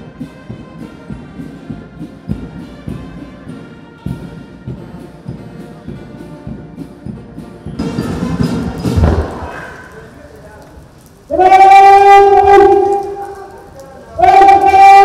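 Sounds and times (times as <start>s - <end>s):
brass band playing a march: 0.0s - 9.3s, 11.3s - 13.5s, 14.1s - 15.0s
bass drum beat: 0.0s - 9.6s.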